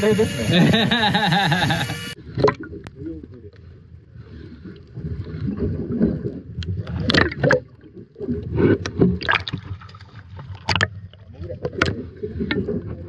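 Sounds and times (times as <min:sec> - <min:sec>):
muffled underwater rumble: 0:02.1 - 0:13.0
water splashing: 0:04.5 - 0:13.0.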